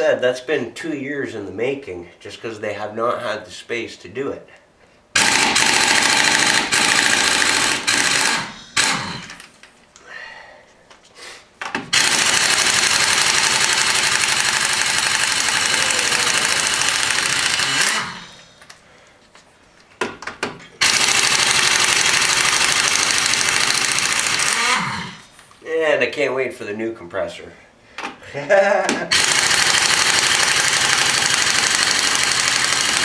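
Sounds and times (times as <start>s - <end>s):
air impact wrench: 5.2s - 9.5s, 11.8s - 18.6s, 20.8s - 25.3s, 29.1s - 33.0s.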